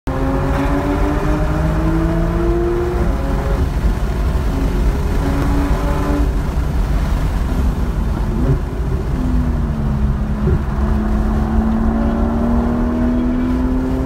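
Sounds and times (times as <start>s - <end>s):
car engine: 0.1s - 14.0s
road and wind noise: 0.1s - 14.0s.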